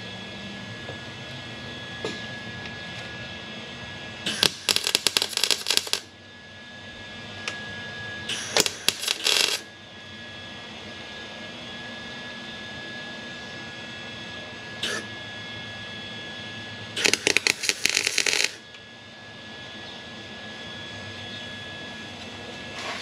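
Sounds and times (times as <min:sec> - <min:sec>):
steady hum: 0:00.0 - 0:23.0
welder arc crackling: 0:04.3 - 0:06.1, 0:08.3 - 0:09.7, 0:17.0 - 0:18.6.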